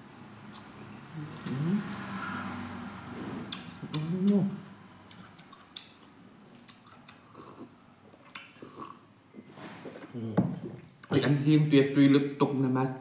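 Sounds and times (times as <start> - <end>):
man chewing: 0.5 - 0.7, 3.5 - 4.4, 5.1 - 9.0
man humming mmm: 1.1 - 2.0, 10.1 - 10.4
mouth clicks: 3.5 - 8.9.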